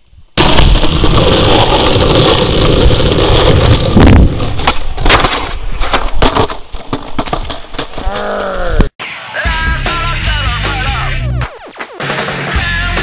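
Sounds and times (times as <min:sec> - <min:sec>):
skateboard wheels rolling on asphalt: 0:00.0 - 0:08.1
skateboard hitting pavement: 0:00.4 - 0:08.1.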